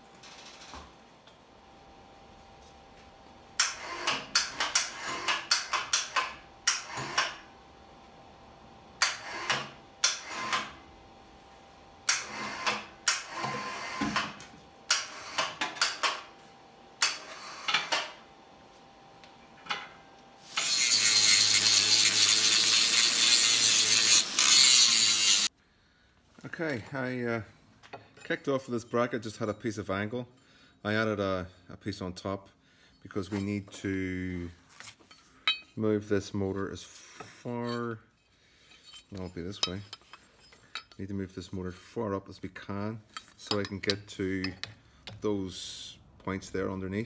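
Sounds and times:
angle grinder grinding steel: 20.4 - 25.5
steel parts knocking and clanking: 35.1 - 35.8, 38.8 - 41.0, 43.1 - 45.2.

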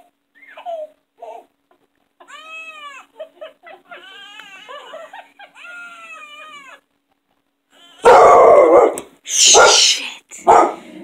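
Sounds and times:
whiny whimper-like cries: 3.9 - 6.8.

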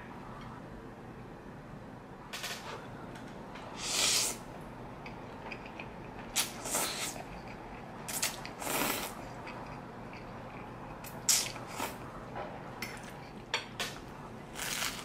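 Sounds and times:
noodles being slurped: 8.1 - 9.2, 14.6 - 15.0.

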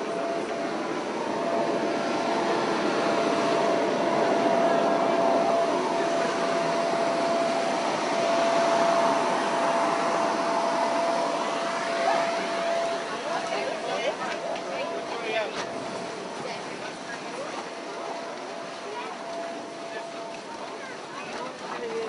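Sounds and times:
machine rushing noise: 0.0 - 14.2
mid-pitched whine: 0.0 - 22.0.

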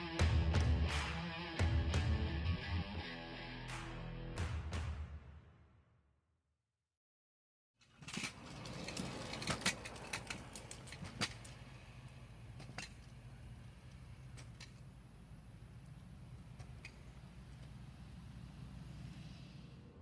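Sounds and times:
scooters rolling on concrete: 7.8 - 20.0.

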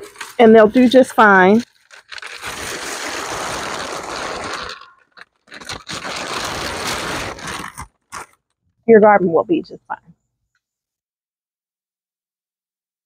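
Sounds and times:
dry plants crunching and rustling: 0.0 - 8.4.

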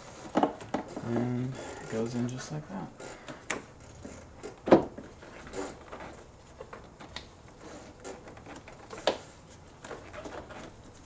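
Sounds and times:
hose rubbing on plastic parts: 5.1 - 11.0.

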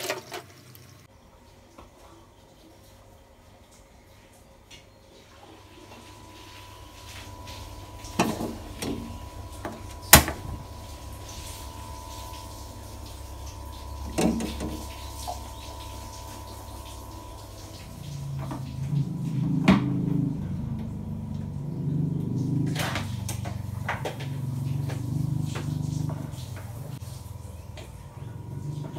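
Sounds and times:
clatter of kitchen items: 0.0 - 1.0
low steady hum: 0.0 - 28.9.

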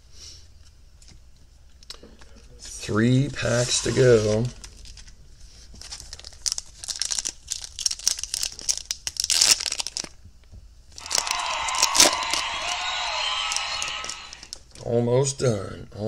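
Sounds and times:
foil wrapper crinkling: 4.5 - 10.2, 10.9 - 12.5, 13.5 - 14.8
foil tearing open: 5.8 - 10.2.

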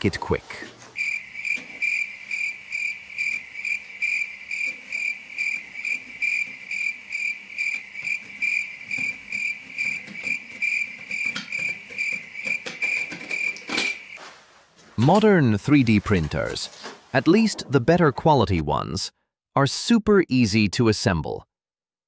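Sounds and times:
cricket chirping: 1.0 - 14.2.

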